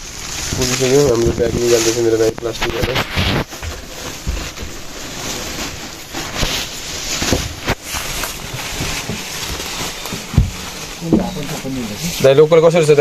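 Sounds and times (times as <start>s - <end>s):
fabric rustling on microphone: 0.0s - 13.0s
plastic bag crinkling: 0.0s - 13.0s
microphone handling knocks: 7.2s - 12.0s.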